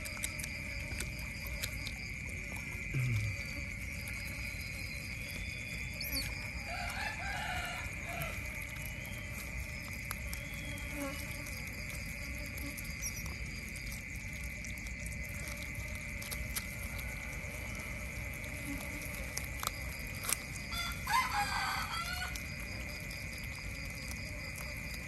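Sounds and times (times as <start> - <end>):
high-pitched insect drone: 0.0 - 25.0
rooster crowing: 6.5 - 8.6, 20.7 - 22.7.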